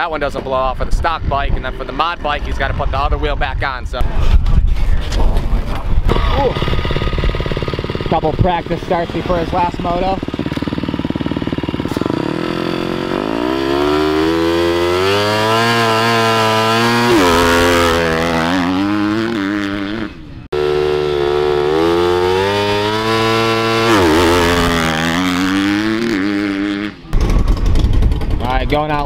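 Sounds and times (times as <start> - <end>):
dirt bike engine revving: 6.0 - 28.6.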